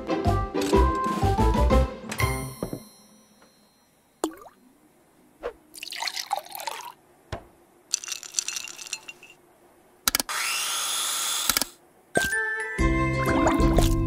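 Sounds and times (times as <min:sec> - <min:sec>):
blender motor whining: 0:10.3 - 0:11.7.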